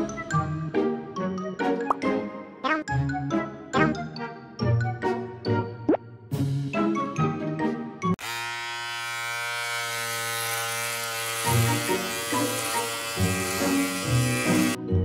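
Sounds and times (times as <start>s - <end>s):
background music: 0.0s - 8.2s, 11.4s - 15.0s
electric hair clipper buzzing: 8.2s - 14.8s.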